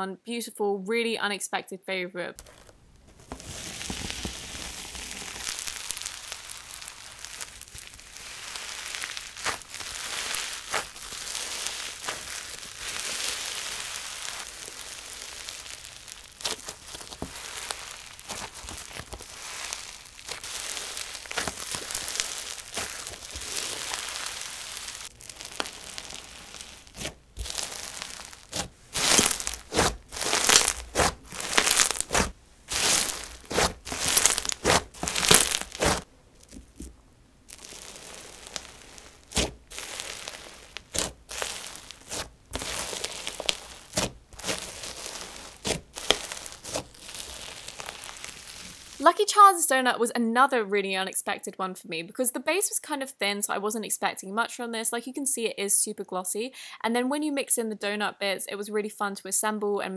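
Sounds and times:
slime crackling and crunching: 0:02.4 - 0:49.5.

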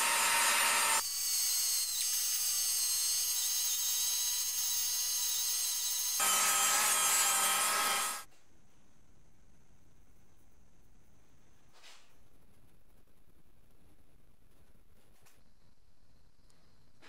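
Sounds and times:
air grinder grinding steel: 0:00.0 - 0:01.2, 0:01.9 - 0:08.3
high whine of grinder: 0:00.0 - 0:08.3.

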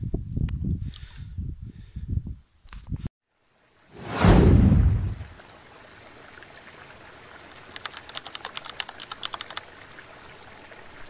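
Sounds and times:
keyboard typing clicks: 0:07.7 - 0:09.6.

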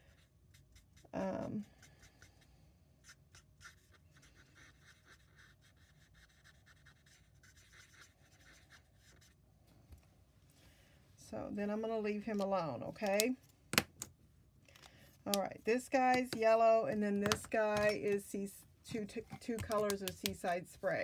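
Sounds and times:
marker scratching on cardstock: 0:00.1 - 0:02.4, 0:03.0 - 0:09.4.

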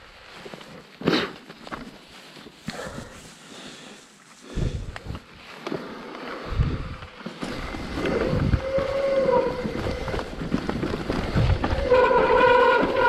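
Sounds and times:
wind buffeting microphone: 0:06.4 - 0:12.1
bike knocks and rattles: 0:07.0 - 0:13.0.

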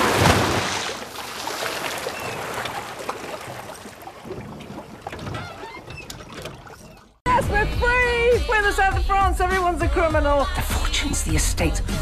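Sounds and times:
seawater sloshing and splashing: 0:00.0 - 0:07.2.

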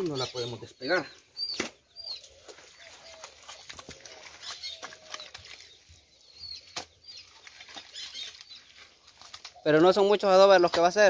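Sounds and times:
wet mud slaps and squelches: 0:01.5 - 0:01.8, 0:02.4 - 0:05.9, 0:06.6 - 0:09.6.

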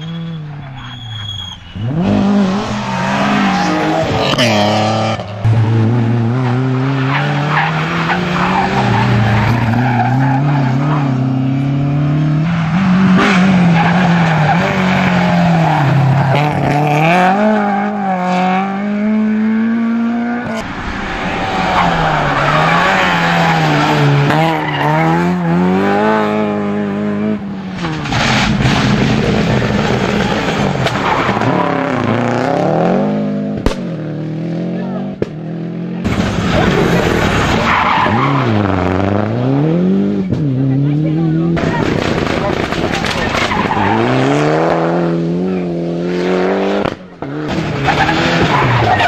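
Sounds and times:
rally car engines revving hard: 0:00.0 - 0:49.0
tyre and gravel noise: 0:41.6 - 0:44.4.

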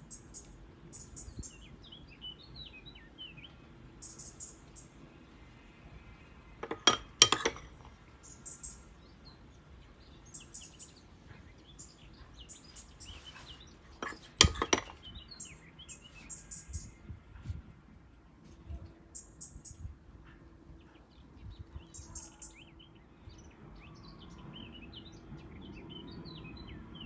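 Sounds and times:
bird chirping: 0:00.0 - 0:05.1, 0:06.2 - 0:17.2
spoon clinking on glass dish: 0:06.6 - 0:07.9, 0:14.0 - 0:14.9.

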